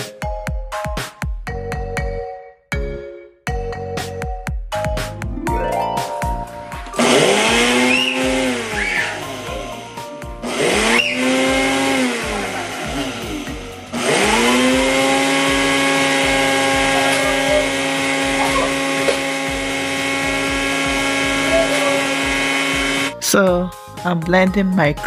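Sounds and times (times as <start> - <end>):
blender motor grinding oats: 7.0 - 23.2.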